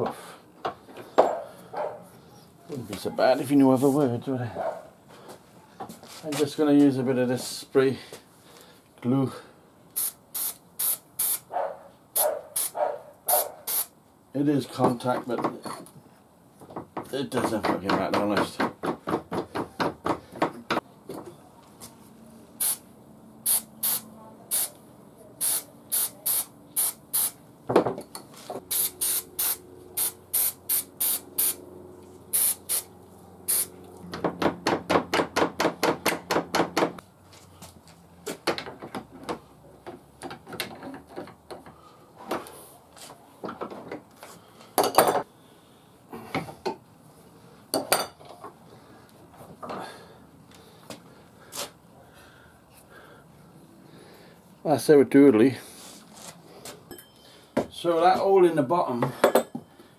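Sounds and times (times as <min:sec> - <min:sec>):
aerosol can hissing spurts: 0:10.0 - 0:11.4, 0:12.2 - 0:13.9, 0:22.6 - 0:22.8, 0:23.5 - 0:24.7, 0:25.4 - 0:27.4, 0:28.7 - 0:31.6, 0:32.3 - 0:32.9, 0:33.5 - 0:33.7.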